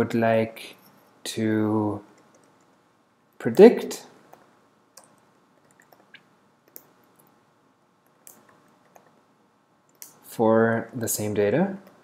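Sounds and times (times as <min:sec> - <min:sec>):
faint keyboard keystrokes: 0:02.1 - 0:02.8.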